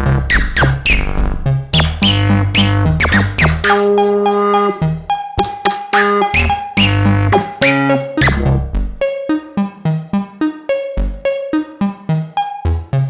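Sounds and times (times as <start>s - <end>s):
synth bass notes: 0.0s - 9.2s
plucked synth notes: 0.0s - 10.1s
gliding synth pitch sweep: 1.8s - 8.8s.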